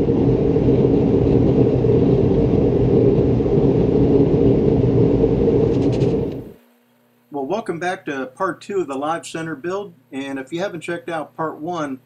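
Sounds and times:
furnace burner roaring: 0:00.0 - 0:06.6.

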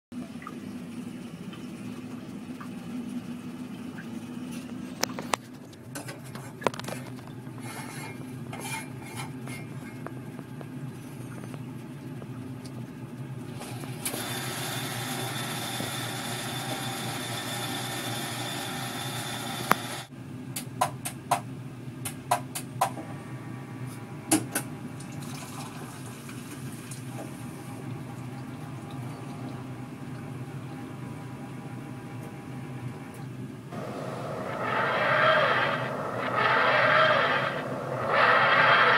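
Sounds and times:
coffee machine whirring: 0:04.6 - 0:11.7, 0:13.4 - 0:20.1, 0:33.7 - 0:38.9.

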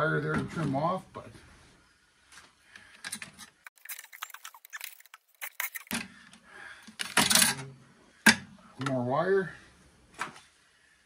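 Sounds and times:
metal parts clicking and rattling: 0:03.0 - 0:06.0.

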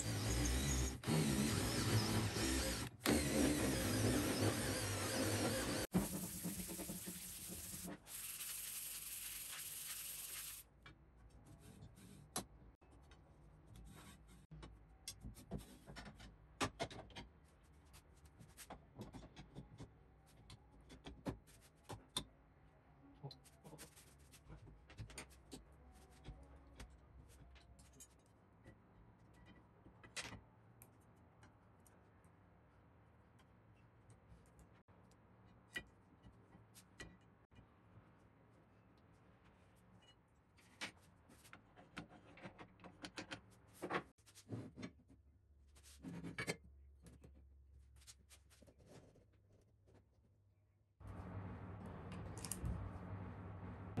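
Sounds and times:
cordless drill driving screws: 0:00.0 - 0:05.8.

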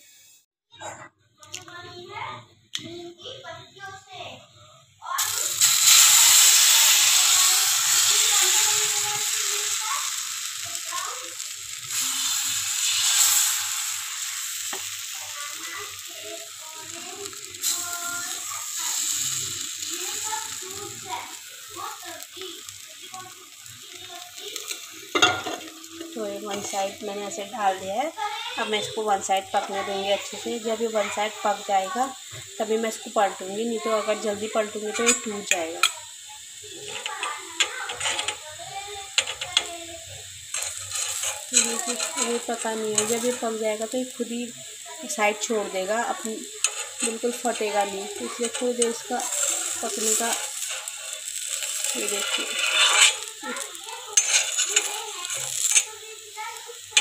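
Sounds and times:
batter sizzling on a griddle: 0:00.0 - 0:00.5, 0:01.7 - 0:57.0
faint voices: 0:15.1 - 0:57.0
spoon scraping iron pan: 0:24.6 - 0:27.4, 0:34.7 - 0:36.0, 0:36.8 - 0:38.4, 0:39.1 - 0:39.7, 0:40.5 - 0:43.6, 0:46.6 - 0:55.9.

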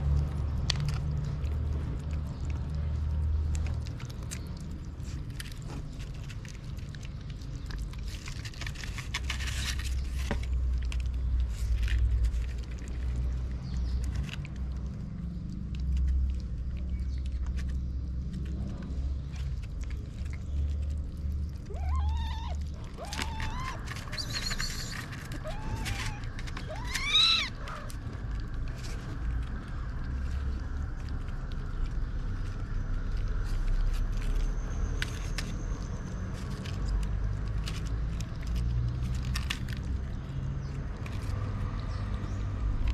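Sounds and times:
low steady rumble: 0:00.0 - 0:42.9
kitten meowing: 0:21.7 - 0:27.9.

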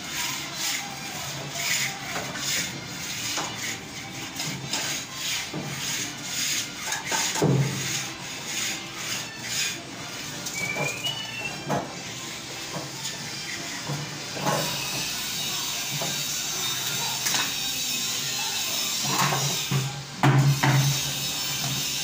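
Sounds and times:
hand rubbing plastered wall: 0:00.0 - 0:17.6.

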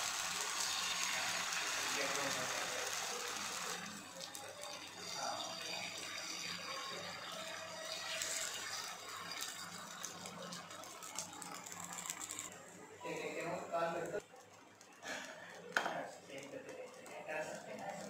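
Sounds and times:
batter sizzling on a hot pan: 0:00.0 - 0:18.0.

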